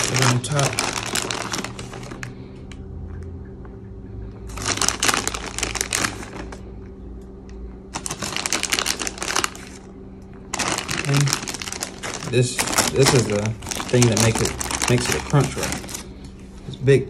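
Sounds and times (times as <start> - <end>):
plastic bag crinkling: 0.0 - 2.5, 4.5 - 6.7, 7.9 - 9.9, 10.5 - 16.2
faint steady hum: 0.0 - 17.0.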